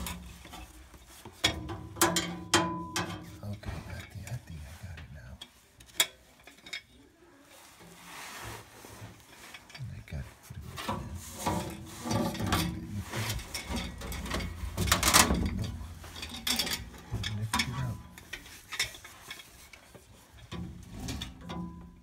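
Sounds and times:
tools clanking and clicking: 0.0s - 4.2s, 5.4s - 7.1s, 10.6s - 22.0s.

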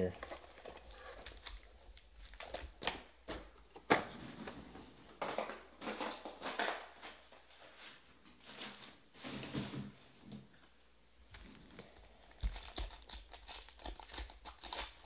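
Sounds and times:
card pack wrappers crinkling: 0.1s - 3.0s, 12.3s - 15.0s.

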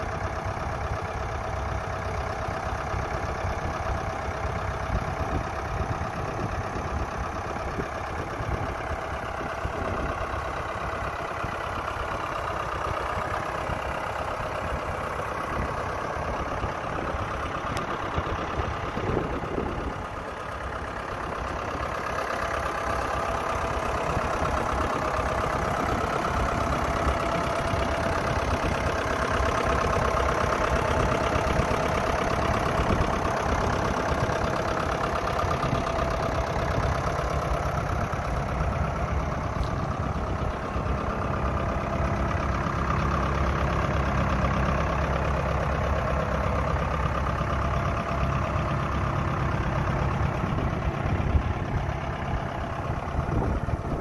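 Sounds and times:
tractor diesel engine idling: 0.0s - 54.0s.

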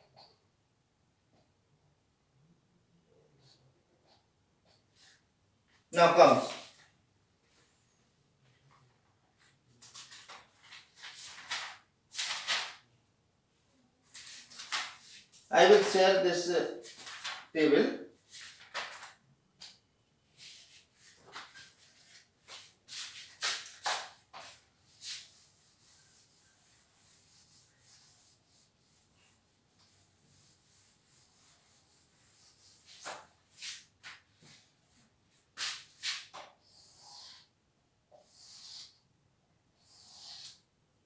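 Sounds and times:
marker pen writing on whiteboard: 3.4s - 5.2s, 20.4s - 34.6s, 35.6s - 39.0s, 39.8s - 40.7s
cloth rubbing on whiteboard: 20.4s - 37.5s, 39.8s - 40.6s.

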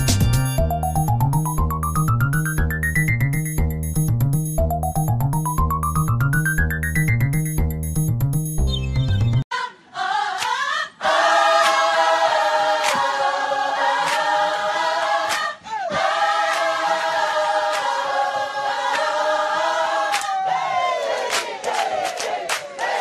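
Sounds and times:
voices singing held chords: 9.5s - 23.0s.

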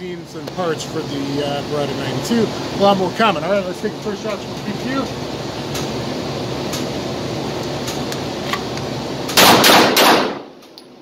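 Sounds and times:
steady background hum: 0.0s - 11.0s
pistol shots: 9.3s - 10.6s.

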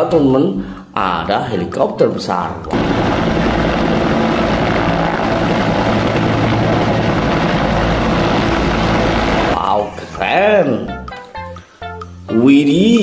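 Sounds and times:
helicopters hovering: 2.8s - 9.6s.

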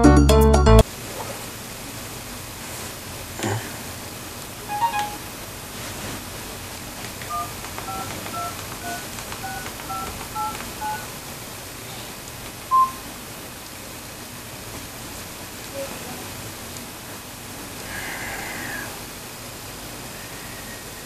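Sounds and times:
steady low hiss: 0.8s - 21.0s
phone keypad touch-tones: 4.7s - 5.2s, 7.3s - 11.1s, 12.7s - 13.0s
loud beep: 12.7s - 13.0s.

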